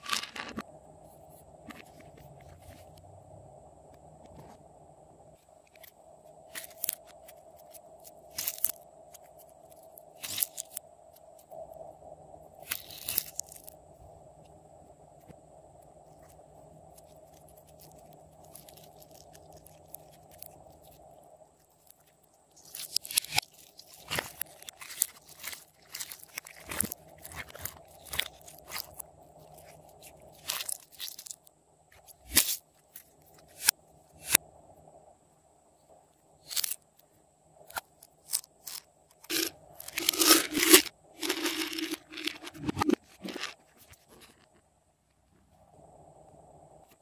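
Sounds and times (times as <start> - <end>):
plastic containers handled: 0.0 - 0.6, 38.7 - 44.4.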